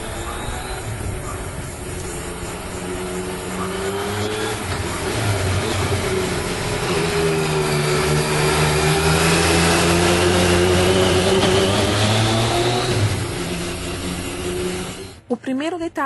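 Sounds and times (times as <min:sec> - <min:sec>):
motorcycle engine running: 0:00.0 - 0:15.2.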